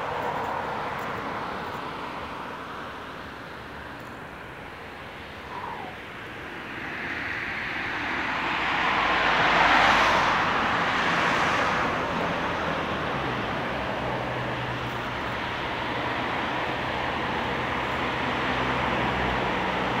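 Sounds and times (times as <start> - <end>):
traffic hum: 0.0 - 20.0
car passing by: 5.4 - 20.0.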